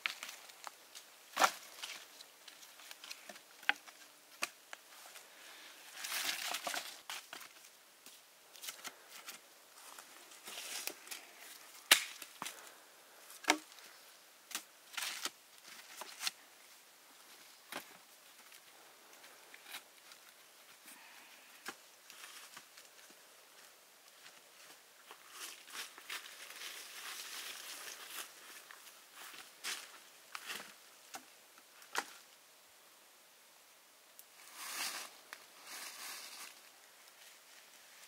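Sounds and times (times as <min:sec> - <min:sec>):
rustling or scraping: 0:04.9 - 0:12.7, 0:34.3 - 0:38.0.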